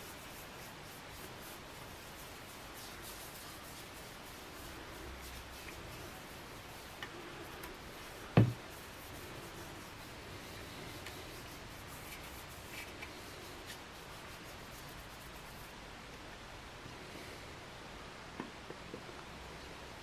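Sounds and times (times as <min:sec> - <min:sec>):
hands rubbing wood: 0:00.0 - 0:15.8
sharp thump: 0:08.4 - 0:08.6.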